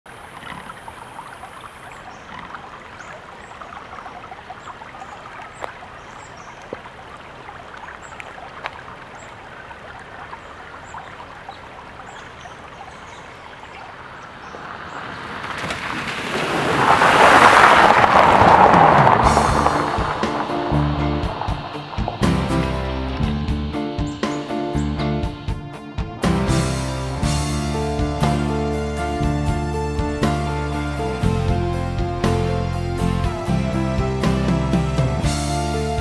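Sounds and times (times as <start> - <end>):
car splashing through water: 0.1 - 23.2
creek water trickling over rock: 0.1 - 23.4.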